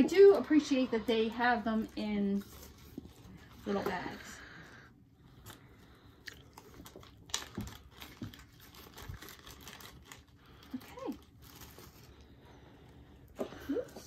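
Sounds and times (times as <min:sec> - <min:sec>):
plastic bag and tissue crinkling: 0:00.0 - 0:04.5, 0:06.4 - 0:12.8.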